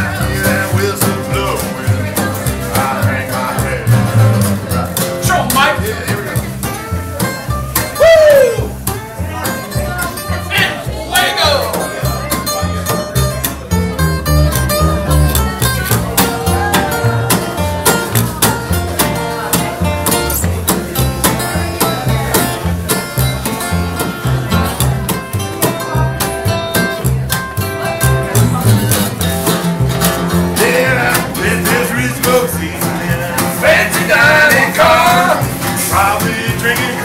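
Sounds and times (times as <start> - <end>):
man singing: 0.0 - 6.3, 30.3 - 37.0
acoustic guitar picking: 0.0 - 37.0
plucked double bass: 0.0 - 37.0.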